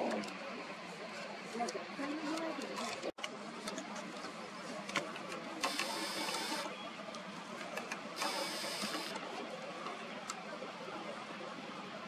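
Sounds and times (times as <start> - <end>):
camera zoom motor whirring: 5.6 - 6.8, 8.2 - 9.2.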